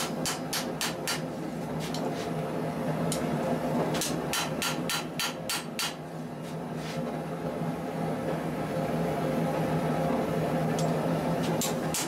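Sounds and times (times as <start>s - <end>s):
hammer striking steel on anvil: 0.0s - 1.3s, 4.0s - 6.0s.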